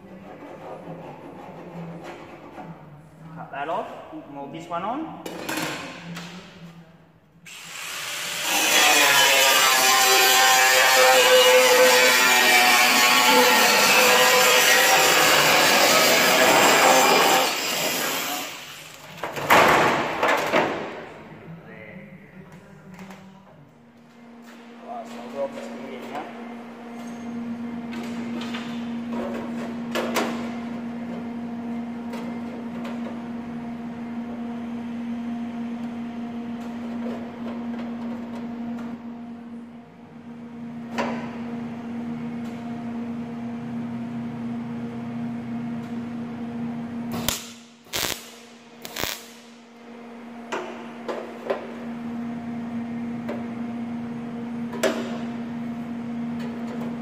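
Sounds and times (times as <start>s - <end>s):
machine electrical hum: 0.0s - 57.0s
sharp cracks: 47.2s - 49.5s.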